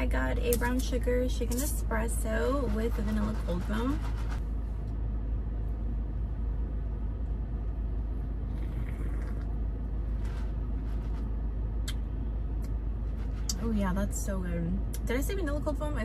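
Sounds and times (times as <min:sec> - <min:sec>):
sip from a cup: 0:08.4 - 0:09.6.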